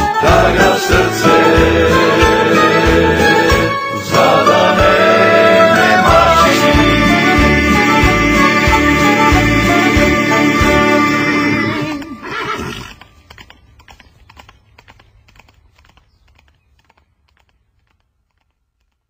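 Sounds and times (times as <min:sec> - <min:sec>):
music: 0:00.0 - 0:12.7
horse whinnying: 0:11.5 - 0:13.1
hoofbeats clip-clopping: 0:11.6 - 0:19.0.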